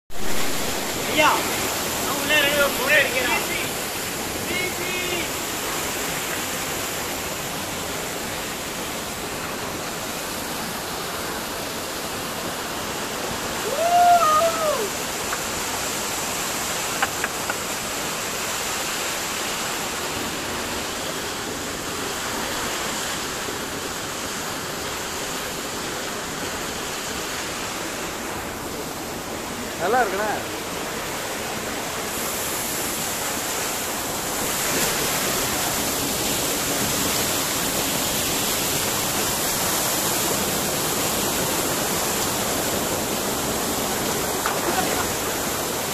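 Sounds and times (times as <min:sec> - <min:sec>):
waterfall rushing: 0:00.1 - 0:45.9
person shouting: 0:13.6 - 0:15.0.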